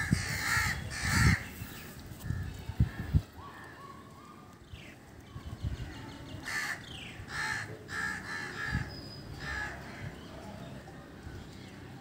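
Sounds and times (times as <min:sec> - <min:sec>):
crows cawing: 0:00.0 - 0:01.5, 0:06.4 - 0:10.2.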